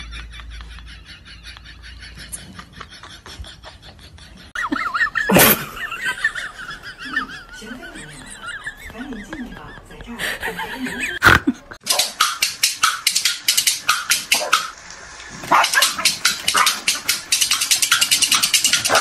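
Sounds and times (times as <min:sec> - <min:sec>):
dogs barking in high yaps: 0:11.8 - 0:19.0.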